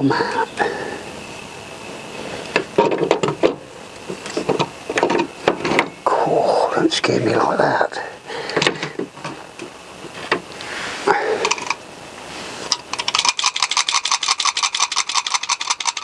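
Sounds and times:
rapid metallic clicking: 12.7 - 16.0.

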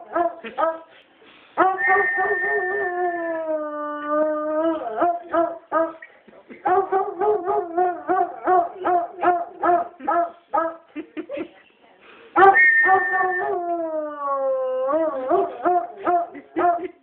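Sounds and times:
dog howling: 1.6 - 5.1, 12.4 - 15.9.

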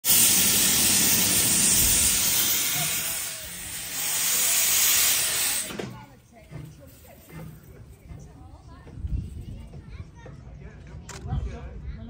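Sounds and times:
steam locomotive hissing steam: 0.0 - 8.6.

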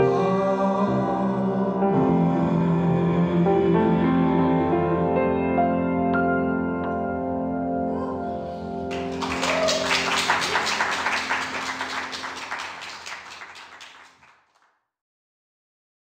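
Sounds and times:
audience applause: 8.9 - 14.7.

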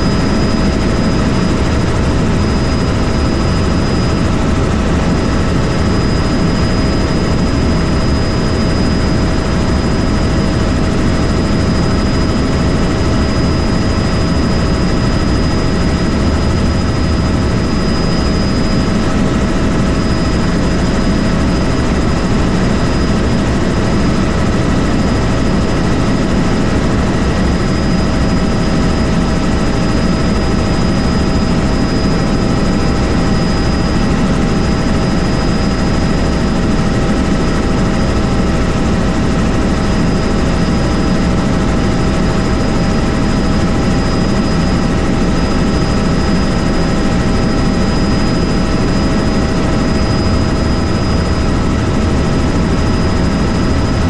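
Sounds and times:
helicopter rotor and engine rumble: 0.0 - 54.0
steady whining tones: 0.0 - 54.0.

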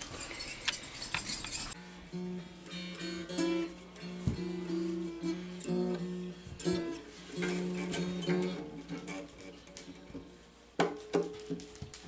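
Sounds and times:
acoustic guitar strummed: 1.8 - 11.4.

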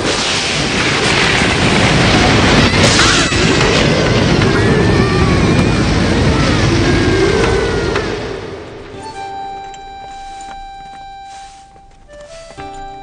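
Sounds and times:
heavy rain: 0.0 - 9.4
wind: 0.0 - 13.0
children crying and sobbing: 1.8 - 9.4.

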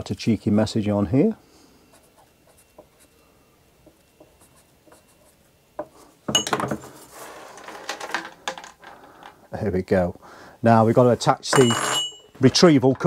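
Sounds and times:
clattering and rubbing of handling: 3.8 - 9.4, 10.7 - 13.0.

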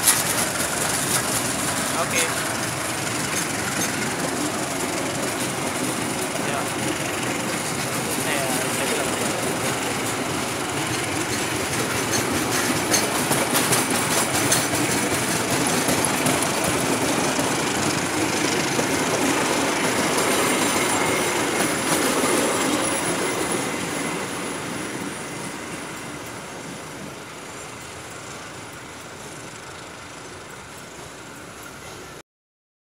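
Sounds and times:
clatter over rail joints: 0.0 - 24.5
train wheels rumbling on rails: 0.0 - 32.2.

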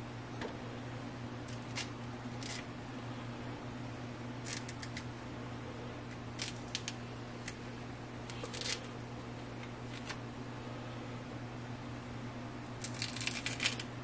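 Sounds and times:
steady low hum: 0.0 - 14.0
lemon peel tearing: 1.5 - 2.7, 12.8 - 13.9.

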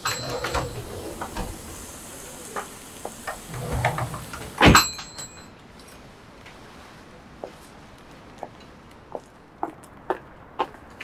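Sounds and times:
door clicks and rattles: 0.0 - 5.4
glass door opening and shutting: 0.0 - 5.4
room noise: 0.0 - 5.5.

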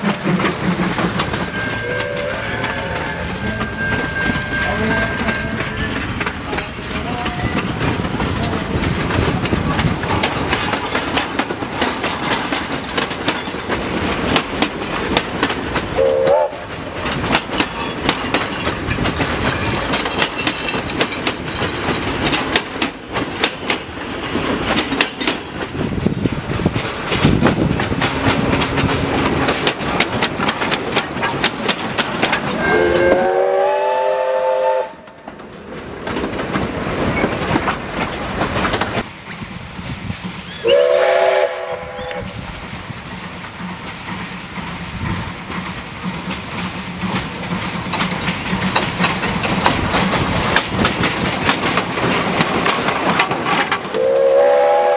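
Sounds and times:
train wheels clattering over rail joints: 0.0 - 54.9
steam locomotive whistle: 1.3 - 5.8, 16.0 - 16.7, 32.6 - 35.1, 40.5 - 42.4, 53.9 - 54.9.

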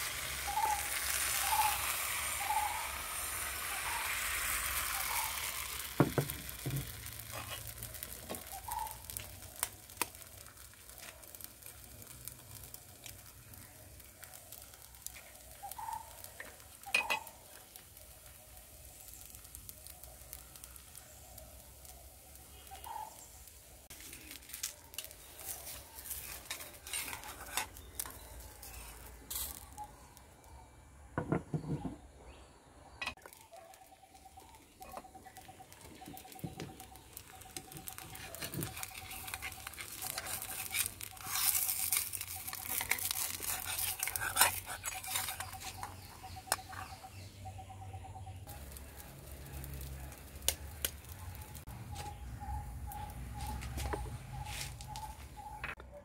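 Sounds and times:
batter sizzling in a pan: 0.0 - 30.5, 33.1 - 47.4, 48.4 - 55.4.

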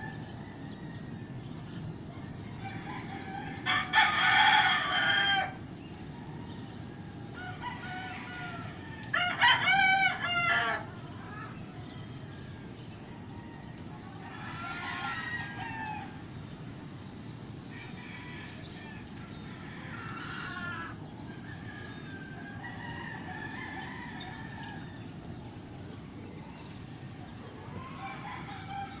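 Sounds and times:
roosters crowing: 0.0 - 29.0.

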